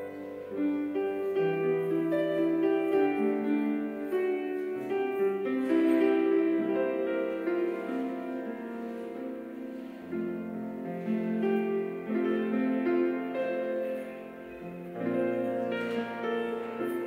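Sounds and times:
slow instrumental keyboard music: 0.0s - 17.0s.

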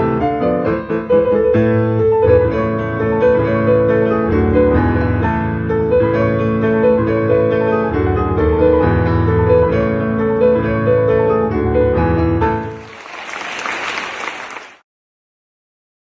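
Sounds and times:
audience applauding: 12.6s - 14.8s.

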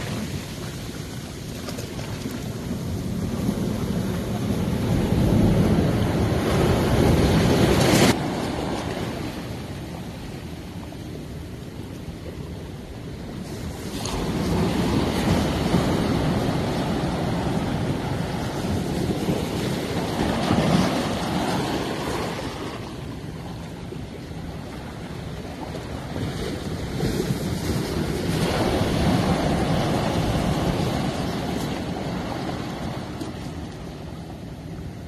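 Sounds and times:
waves washing through boulders: 0.0s - 10.3s, 13.1s - 23.4s, 24.1s - 35.0s.

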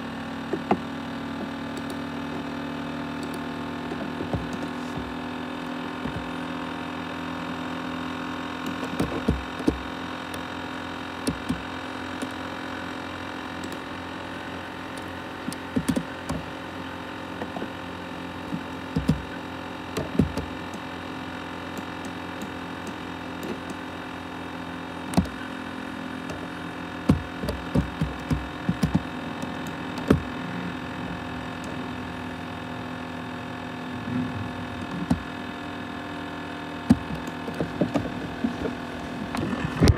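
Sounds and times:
laptop fan and drive hum: 0.0s - 39.9s
sharp clicks and knocks: 0.5s - 2.4s, 3.2s - 5.2s, 6.0s - 6.4s, 8.6s - 10.4s, 11.2s - 11.6s, 15.0s - 16.5s, 18.5s - 20.9s, 25.1s - 25.4s, 26.2s - 30.4s, 34.7s - 35.3s, 36.8s - 39.9s.

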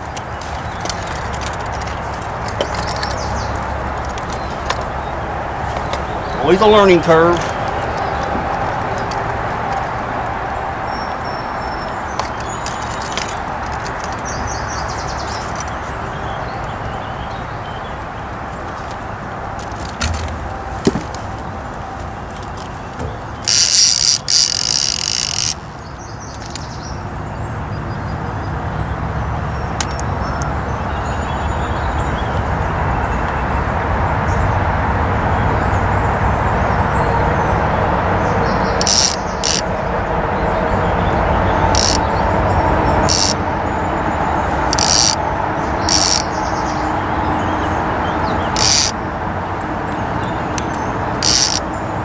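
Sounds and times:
outboard motor running: 0.0s - 10.4s, 40.5s - 44.0s
boat motor hum: 0.0s - 33.7s, 35.5s - 52.0s
fishing reel clicker buzzing: 23.4s - 25.7s, 38.8s - 39.7s, 41.7s - 42.1s, 43.0s - 43.4s, 44.7s - 45.2s, 45.8s - 46.3s, 48.5s - 49.0s, 50.6s - 51.6s.

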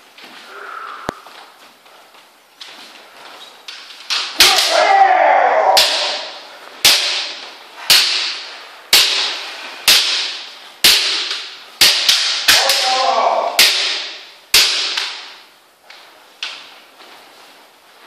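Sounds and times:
bamboo sword strikes: 4.0s - 15.5s.

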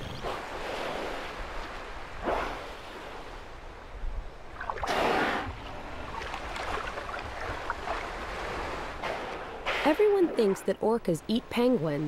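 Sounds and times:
water sloshing: 4.4s - 10.8s.

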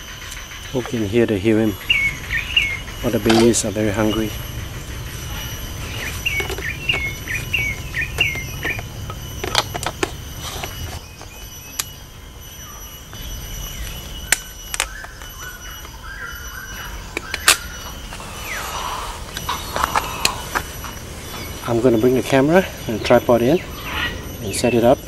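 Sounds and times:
heron chicks begging calls: 0.7s - 9.4s, 15.4s - 25.0s.

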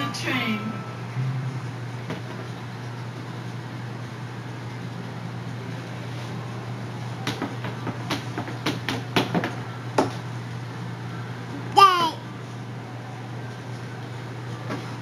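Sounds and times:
steady low hum: 0.0s - 7.2s.

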